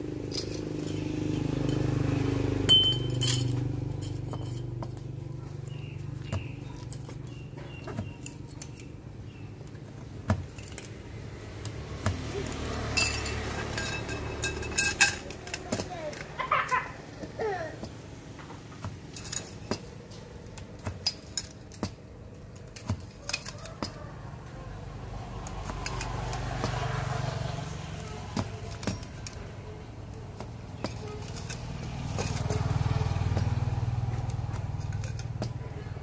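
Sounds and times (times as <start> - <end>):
light metallic clinks: 0.2 - 9.4, 12.9 - 16.2, 19.1 - 19.9.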